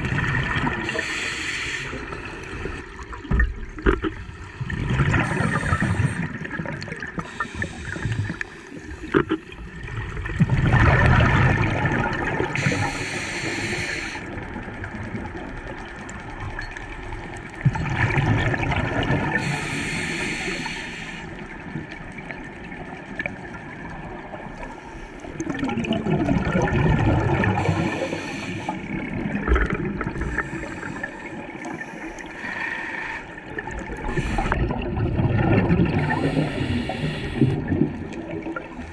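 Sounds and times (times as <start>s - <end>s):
exhaled bubbles gurgling underwater: 0.0s - 38.9s
regulator hiss: 0.9s - 2.6s, 12.6s - 14.3s, 19.4s - 21.3s, 27.6s - 28.7s, 36.0s - 37.6s.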